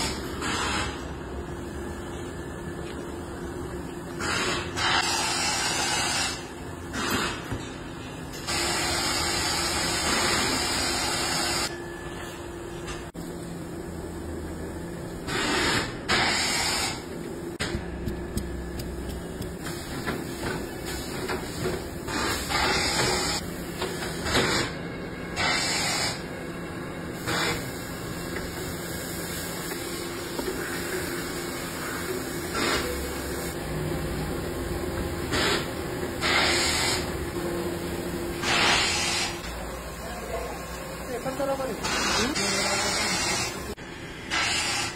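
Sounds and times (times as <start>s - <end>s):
machine humming: 8.5s - 21.3s.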